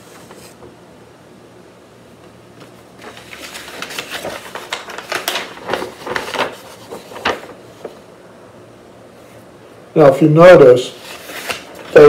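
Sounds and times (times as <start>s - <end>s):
paper rustling and crackling: 0.0s - 0.7s, 2.6s - 8.1s, 10.9s - 12.0s.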